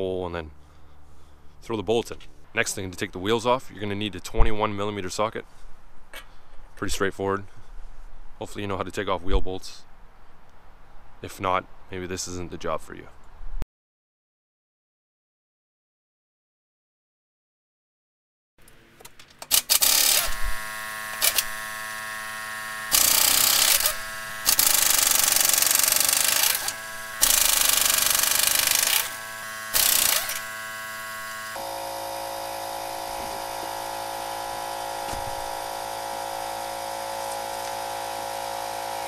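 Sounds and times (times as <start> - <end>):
different steady hum: 18.6 - 39.0
impact wrench rattling: 19.1 - 22.0, 22.9 - 31.4
steady hum: 20.2 - 39.0.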